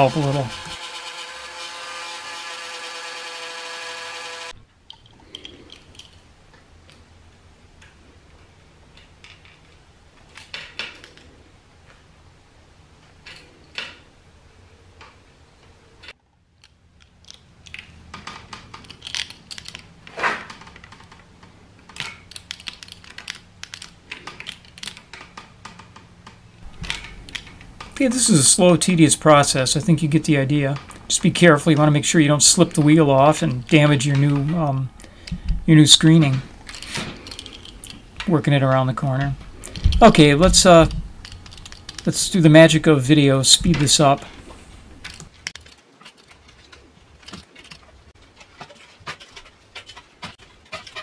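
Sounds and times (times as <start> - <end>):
blow dryer whine: 0.0 - 4.6
roller tool clicks and scrapes: 0.0 - 4.6.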